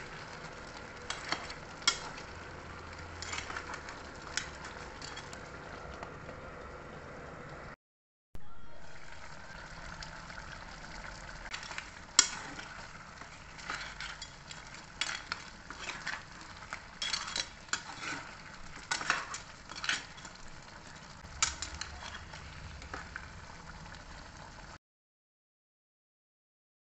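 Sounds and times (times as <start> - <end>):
metal ladle scraping a pan: 0.0 - 5.6, 11.4 - 23.3
food sizzling in a pot: 0.0 - 5.9, 8.8 - 24.8.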